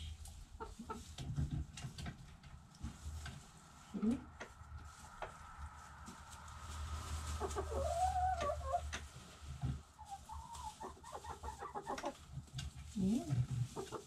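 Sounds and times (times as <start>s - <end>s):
hens clucking: 0.2s - 3.2s, 6.0s - 14.0s
low rumble: 2.4s - 10.0s.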